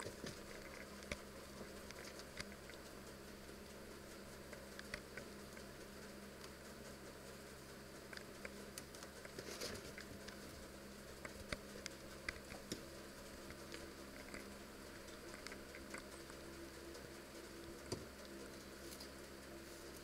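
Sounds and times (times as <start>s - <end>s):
low room hum: 0.0s - 20.0s
rabbits rustling on hay: 0.0s - 20.0s.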